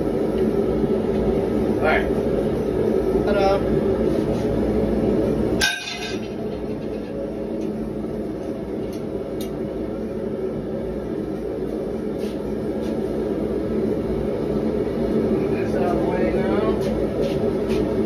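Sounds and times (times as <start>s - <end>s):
forge burner roaring: 0.0s - 18.0s
metal clank with ringing: 5.6s - 6.4s.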